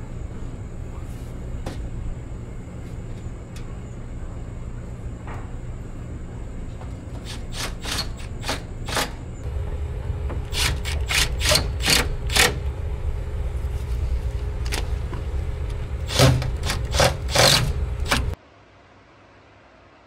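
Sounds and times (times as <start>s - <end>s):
steady low rumble: 9.4s - 18.4s
sharp clicks and knocks: 14.6s - 18.4s.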